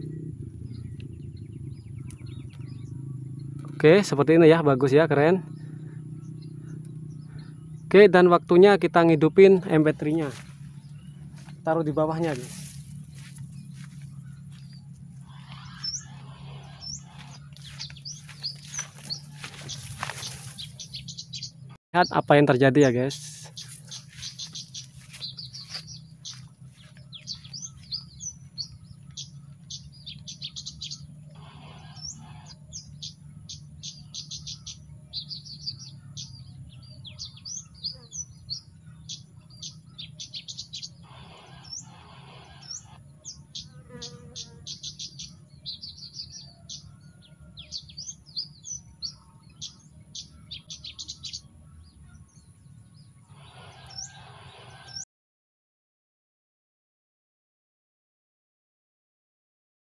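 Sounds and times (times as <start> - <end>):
low hum: 0.0 - 21.8
bird chirping from speaker: 0.0 - 55.0
short bursts of noise: 41.0 - 43.0.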